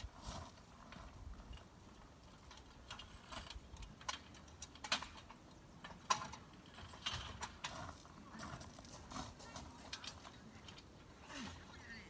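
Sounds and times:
footsteps on gravel: 0.0s - 1.3s, 7.5s - 10.4s
metal tent poles clicking: 1.6s - 8.6s.

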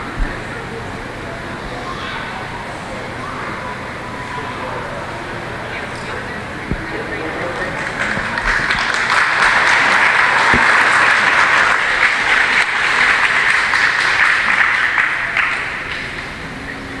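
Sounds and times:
audience applauding: 6.8s - 16.6s.

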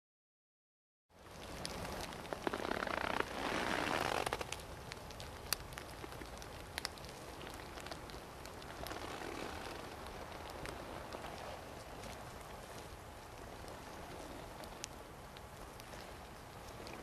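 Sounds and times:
boots stepping through wet leaves: 2.4s - 4.4s.

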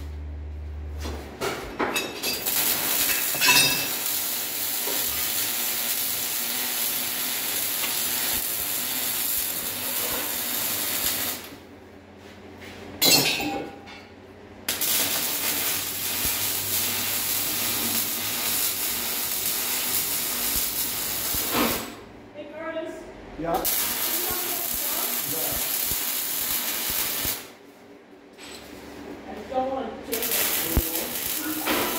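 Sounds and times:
welding arc crackling: 2.2s - 11.6s, 14.7s - 22.0s, 23.6s - 27.6s, 30.1s - 31.9s.

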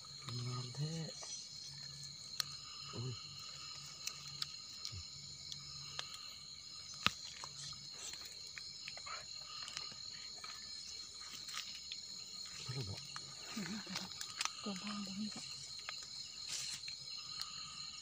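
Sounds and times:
crickets trilling: 0.0s - 18.0s
clicks and scrapes handling mushrooms: 3.6s - 17.8s.

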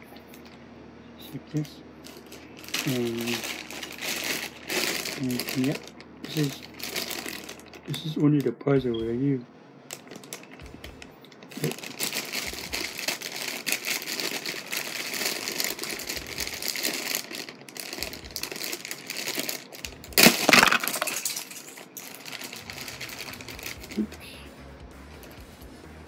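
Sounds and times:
plastic bag crinkling: 2.0s - 8.2s, 9.9s - 24.3s.

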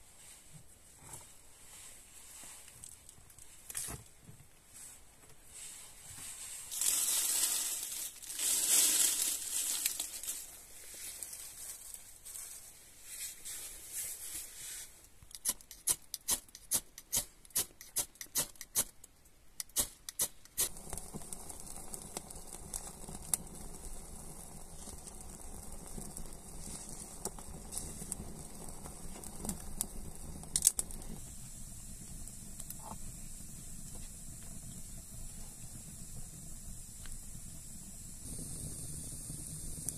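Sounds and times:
fire crackling: 5.6s - 12.6s, 19.7s - 39.9s
dry leaves rustling by hand: 5.6s - 14.7s.

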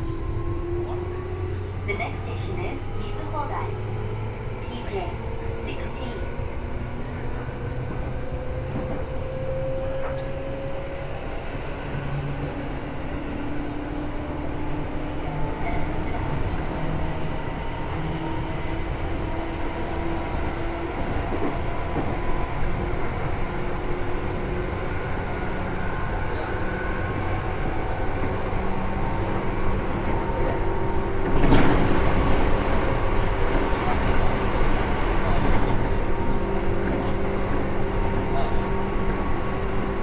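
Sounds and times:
train rumble: 0.0s - 40.0s.

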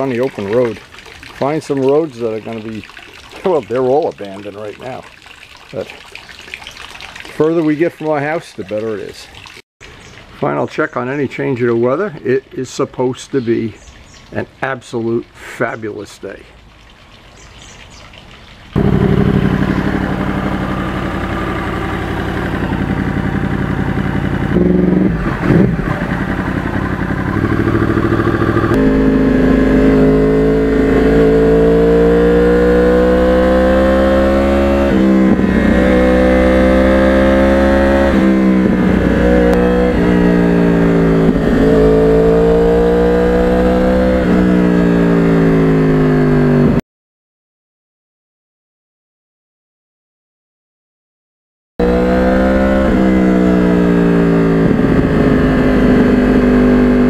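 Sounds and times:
motorcycle engine revving and shifting: 18.8s - 46.8s, 51.8s - 57.0s.

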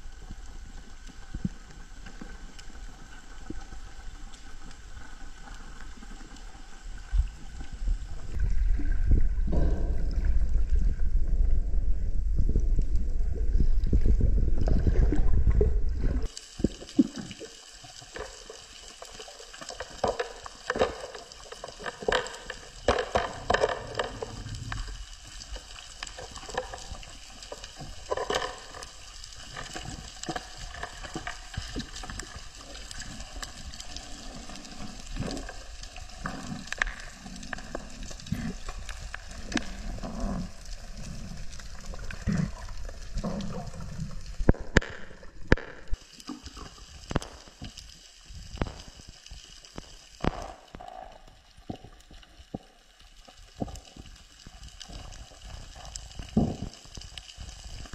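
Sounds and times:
underwater rush of water: 0.0s - 57.9s
underwater crackling clicks: 16.2s - 57.9s.

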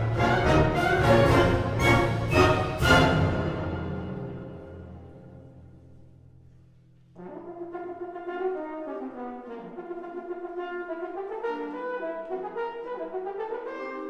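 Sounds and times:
solo french horn melody: 7.2s - 14.0s.

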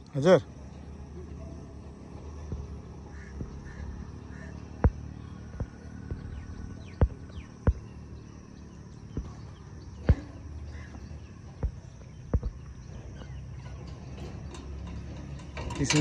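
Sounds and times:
sharp knocks: 4.8s - 7.9s.

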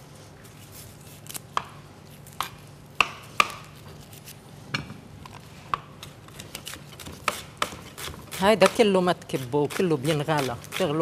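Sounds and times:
knife chopping on cutting board: 5.7s - 11.0s.

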